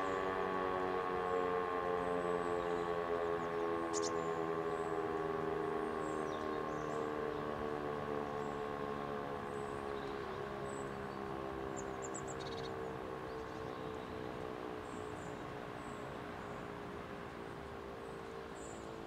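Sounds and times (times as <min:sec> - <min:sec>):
siren wail winding down: 0:00.0 - 0:09.3.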